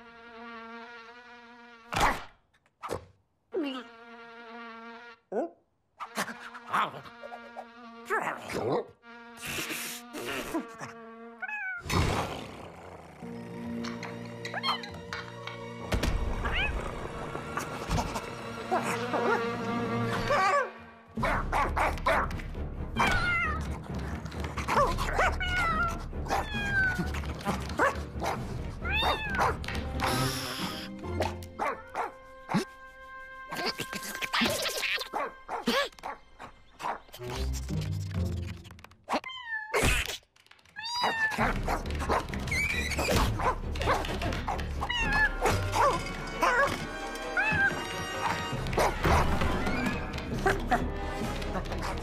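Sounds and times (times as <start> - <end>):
squeaky cartoon animal cries: 11.4 - 11.8, 28.9 - 29.4, 40.8 - 41.4, 44.8 - 45.5
cartoon animal whines and yelps: 11.4 - 11.9, 23.0 - 23.7, 40.8 - 41.5
quiet background music: 13.1 - 38.2, 41.2 - 52.0.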